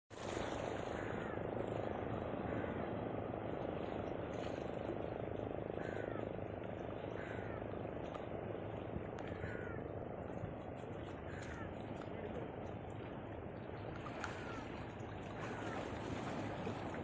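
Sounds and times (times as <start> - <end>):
sea water lapping against rocks: 0.1 - 17.0.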